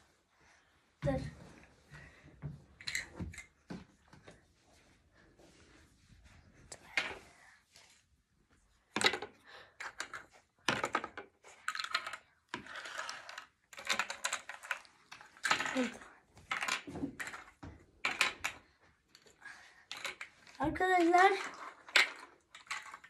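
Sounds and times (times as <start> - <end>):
plastic blocks clicking and clattering: 2.8 - 3.6, 8.9 - 23.0.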